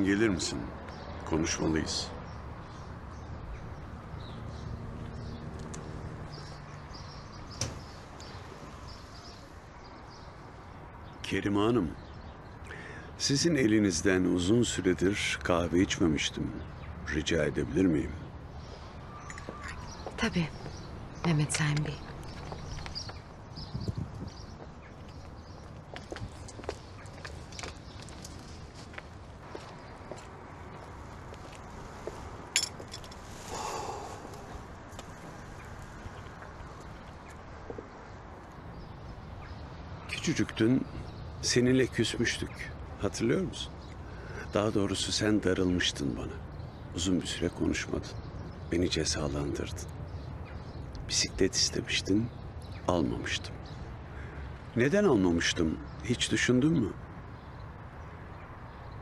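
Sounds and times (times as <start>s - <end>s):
faint bird chirps: 17.9s - 25.7s, 33.4s - 37.4s
footsteps on stone path: 19.3s - 37.9s.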